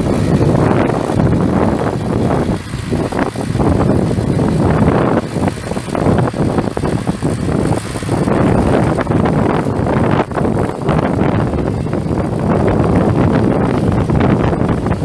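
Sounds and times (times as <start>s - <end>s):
tractor diesel engine running: 0.0s - 15.0s
wind buffeting microphone: 0.0s - 15.0s.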